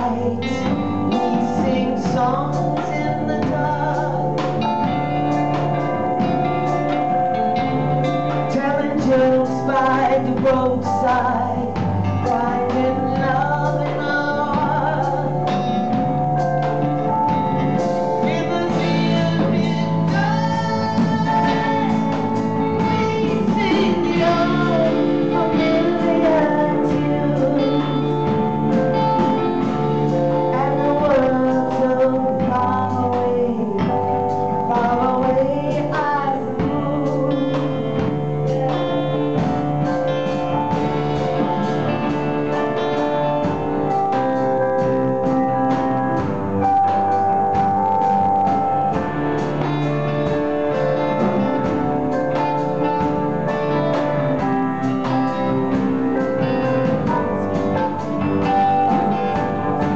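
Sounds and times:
woman singing: 0:00.0 - 0:41.0
electric guitars: 0:00.0 - 0:59.9
keyboard: 0:00.0 - 0:59.9
drum kit hits: 0:36.6 - 0:59.9.

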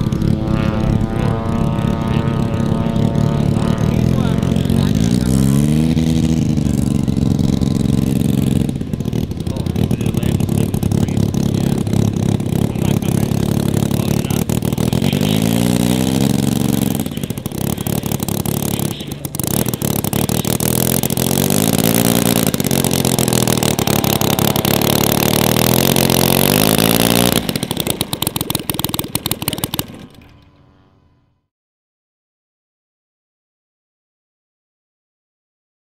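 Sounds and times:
model aircraft engine running: 0:00.0 - 0:31.4.

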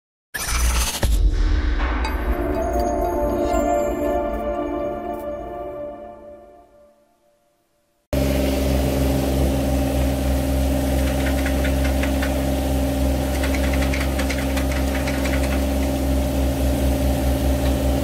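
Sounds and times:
loader engine running: 0:08.2 - 0:18.0.

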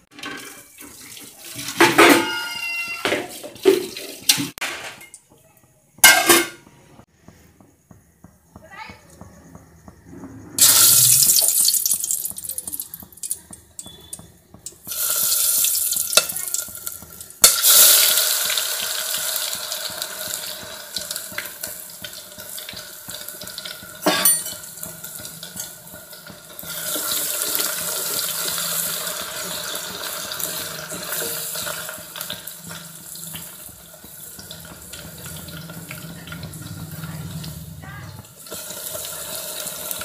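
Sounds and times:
metal clink on pot: 0:01.8 - 0:03.0, 0:06.0 - 0:06.6, 0:24.0 - 0:24.9
oil sizzling and hissing: 0:10.6 - 0:13.4, 0:14.2 - 0:40.0.

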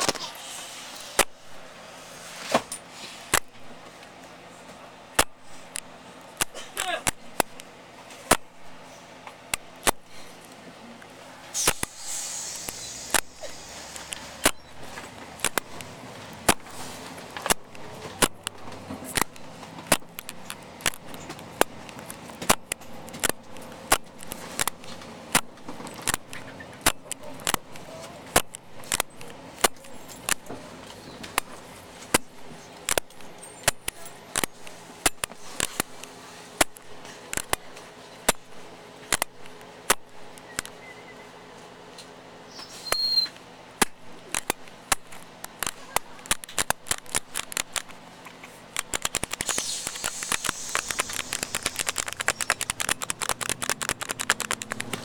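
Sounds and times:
steady low hum: 0:00.0 - 0:42.6
sharp clicks or knocks: 0:01.2 - 0:01.4, 0:03.3 - 0:03.8, 0:05.2 - 0:08.6, 0:09.5 - 0:10.2, 0:11.6 - 0:30.6, 0:31.2 - 0:40.8, 0:43.8 - 0:48.0, 0:48.7 - 0:55.0.

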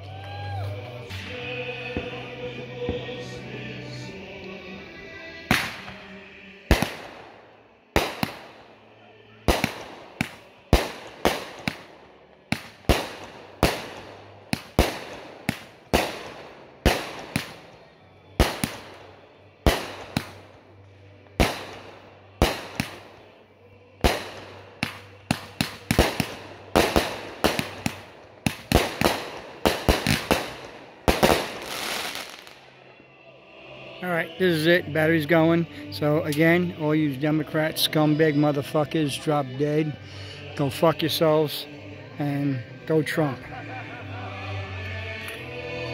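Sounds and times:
firework crackle: 0:05.5 - 0:08.8, 0:09.5 - 0:20.7, 0:21.3 - 0:23.4, 0:24.0 - 0:32.8
fireworks banging: 0:05.5 - 0:08.8, 0:09.5 - 0:23.4, 0:24.0 - 0:32.7.

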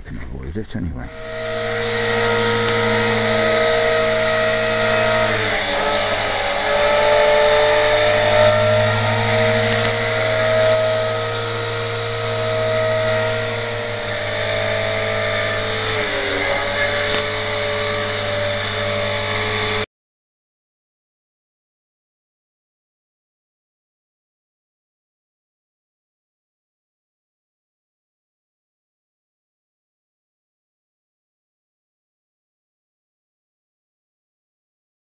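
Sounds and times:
rc helicopter rotor whine: 0:01.0 - 0:19.9.

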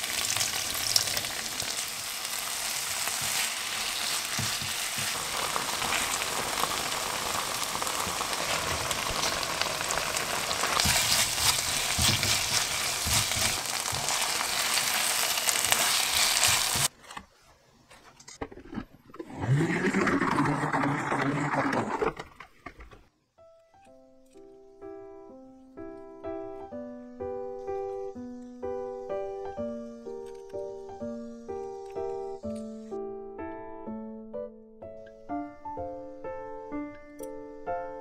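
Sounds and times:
sauce sizzling in a frying pan: 0:00.0 - 0:16.9.

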